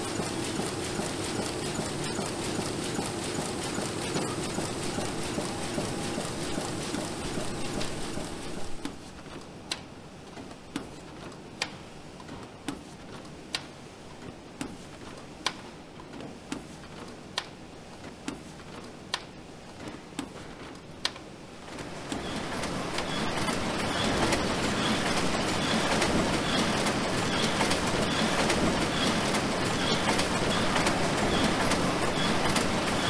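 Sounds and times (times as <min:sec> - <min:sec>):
machine clicking: 0:00.0 - 0:08.9, 0:21.8 - 0:33.0
low mechanical hum: 0:00.0 - 0:33.0.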